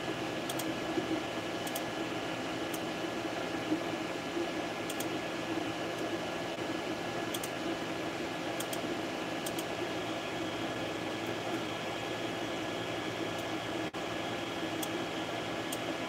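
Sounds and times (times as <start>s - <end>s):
cooling fans whirring: 0.0s - 16.0s
faint clicks: 4.9s - 5.2s, 8.6s - 9.7s.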